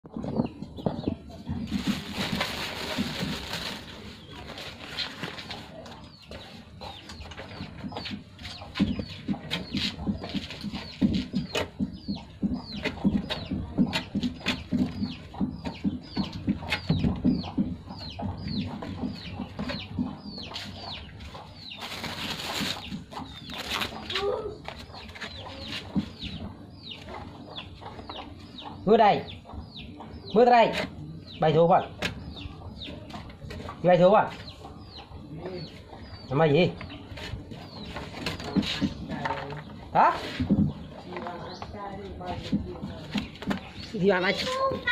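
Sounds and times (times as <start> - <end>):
chicks peeping: 0.1 - 44.9
hen clucking: 0.1 - 44.9
rustling: 1.6 - 6.0, 21.8 - 24.1.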